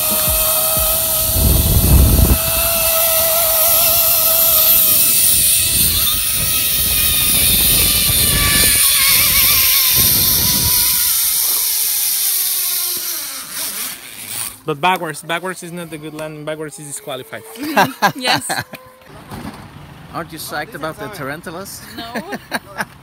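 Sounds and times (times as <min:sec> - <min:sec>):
rushing noise: 0:00.0 - 0:11.0
zipline pulleys whirring: 0:00.0 - 0:14.7.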